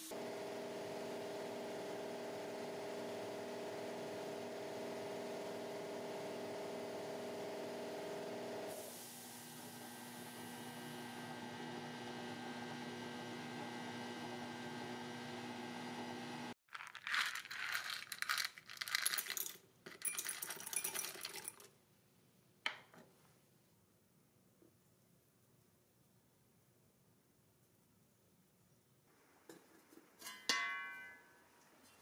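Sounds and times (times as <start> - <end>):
screws clinking into glass beaker: 17.6 - 21.7.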